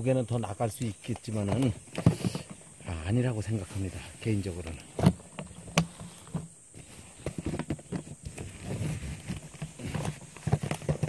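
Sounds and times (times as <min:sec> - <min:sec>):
soft knocks and leaf rustles: 0:00.9 - 0:11.0
microphone handling noise: 0:01.4 - 0:02.8, 0:03.6 - 0:11.0.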